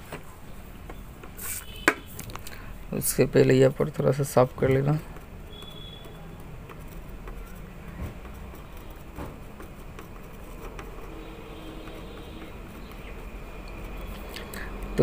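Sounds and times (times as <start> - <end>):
steady low hum: 0.0 - 15.0
soldering iron tapping and clicking: 4.8 - 15.0.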